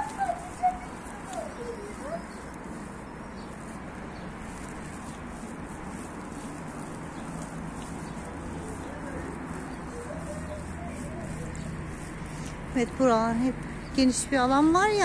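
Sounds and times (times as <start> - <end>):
short gliding calls: 0.0 - 3.8, 4.6 - 12.6
outdoor background noise: 0.0 - 15.0.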